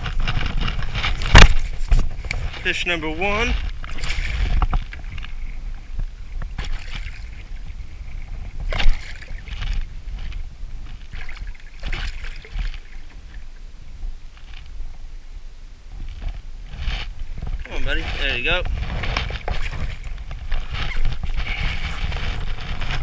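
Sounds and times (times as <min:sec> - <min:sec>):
water lapping against kayak: 0:00.0 - 0:23.0
wind rumble on microphone: 0:00.0 - 0:23.0.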